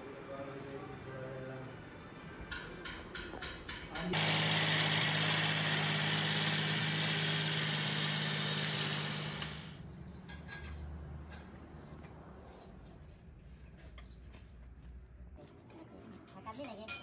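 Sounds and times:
tractor diesel engine running: 4.2s - 9.8s.

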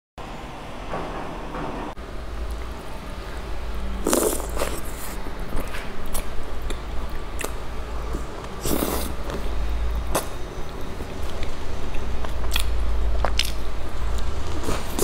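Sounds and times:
low hum: 0.2s - 15.0s
wet biting and sucking: 4.0s - 9.5s, 10.1s - 10.4s, 11.0s - 15.0s.

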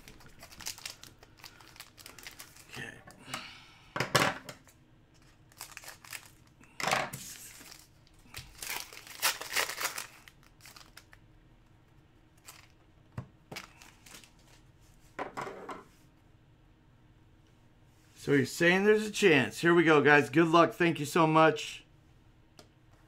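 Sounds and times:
foil wrapper crinkling and tearing: 0.0s - 2.9s, 5.2s - 6.6s, 7.2s - 11.2s, 12.4s - 12.8s, 13.6s - 14.6s.

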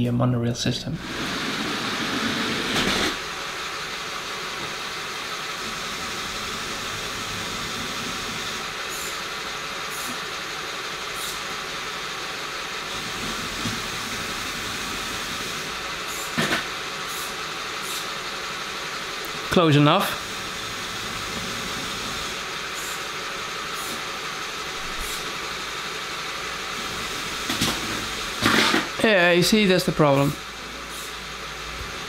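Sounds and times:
steady air hiss: 1.0s - 31.8s
short sharp air hisses: 8.9s - 9.2s, 9.9s - 10.2s, 11.1s - 11.5s, 16.0s - 18.2s, 21.9s - 23.1s, 23.7s - 24.1s, 24.9s - 25.4s, 30.8s - 31.2s.

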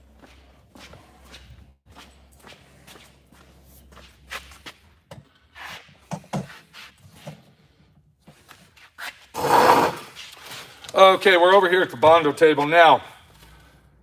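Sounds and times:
footsteps on concrete: 0.0s - 5.4s.

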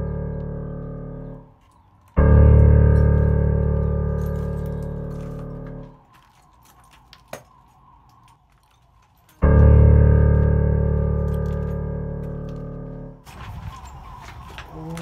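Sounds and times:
keyboard chord: 0.0s - 1.5s.

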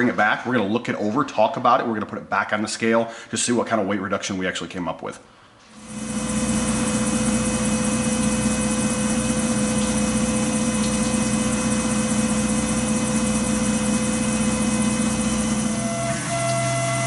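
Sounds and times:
milling machine drone: 5.8s - 17.0s
spindle whining: 5.8s - 17.0s.

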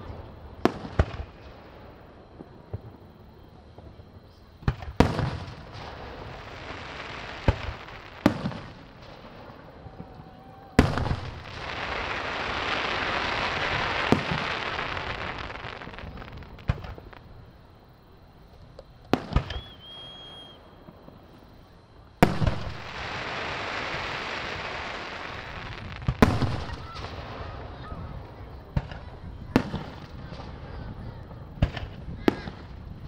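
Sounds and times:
fireworks bangs: 0.0s - 33.0s
long hiss: 5.0s - 18.5s, 19.1s - 28.5s.

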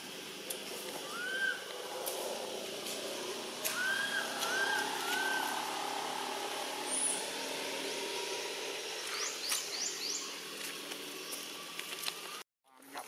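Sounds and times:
low engine-like drone: 0.0s - 12.4s
rising bird chirps: 1.0s - 1.7s, 3.7s - 7.4s
whistle-like call: 1.1s - 1.6s, 3.7s - 5.6s.

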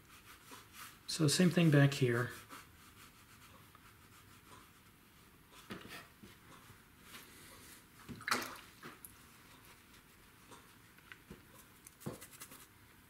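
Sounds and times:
brush strokes on paper: 0.0s - 7.8s, 9.2s - 10.9s, 11.5s - 12.8s.

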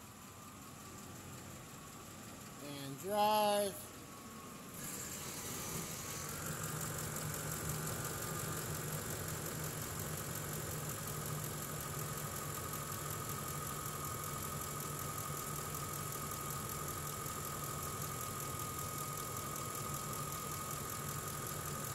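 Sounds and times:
steady high whine: 0.0s - 11.5s
truck engine idling: 0.0s - 21.9s.

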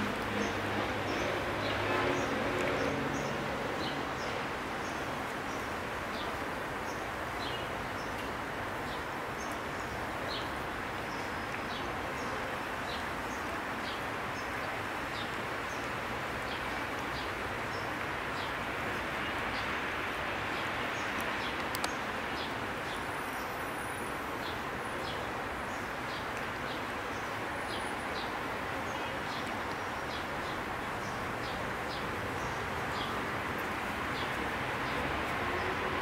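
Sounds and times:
outdoor background noise: 0.0s - 36.0s.

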